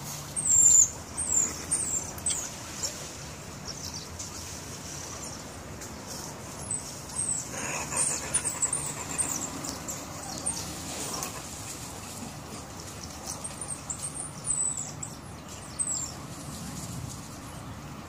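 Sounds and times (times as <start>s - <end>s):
mongooses chirping: 0.3s - 3.0s, 6.6s - 16.2s.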